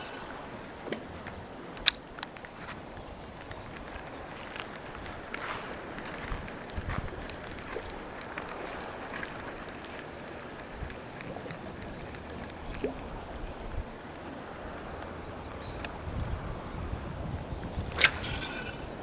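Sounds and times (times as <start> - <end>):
thin high whine: 0.0 - 4.3, 10.3 - 19.0
water at shoreline: 0.0 - 19.0
wind: 0.0 - 19.0.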